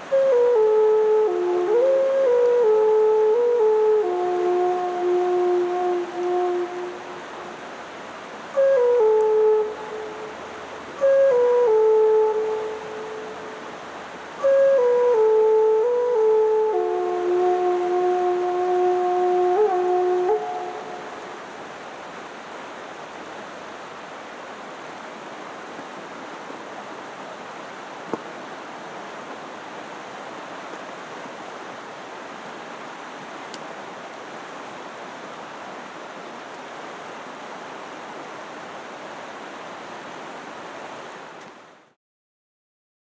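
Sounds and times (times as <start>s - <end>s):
flute note: 0.0s - 7.6s, 8.5s - 13.6s, 14.3s - 21.5s
river running over rapids: 0.0s - 42.0s.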